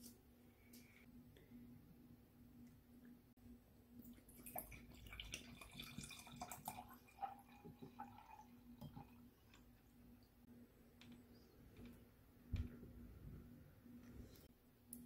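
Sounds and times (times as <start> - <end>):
faint steady hum: 0.0 - 15.0
liquid pouring into a glass: 4.1 - 9.6.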